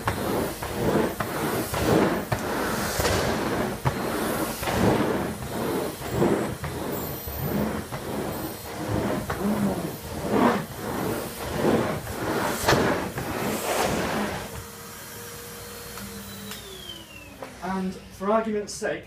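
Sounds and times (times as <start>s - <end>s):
vacuum tool pushed over carpet: 0.0s - 18.1s
vacuum cleaner motor: 0.0s - 18.7s.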